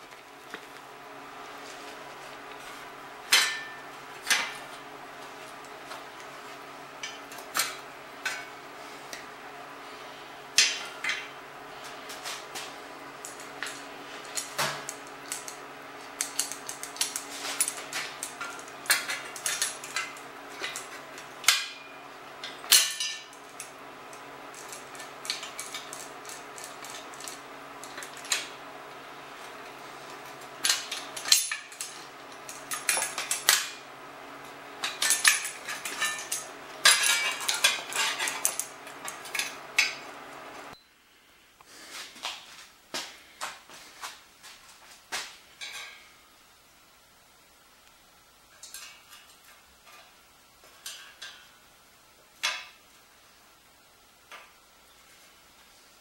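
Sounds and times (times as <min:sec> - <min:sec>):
steady hum: 0:00.0 - 0:56.0
metallic clinks and rattles: 0:34.8 - 0:39.6.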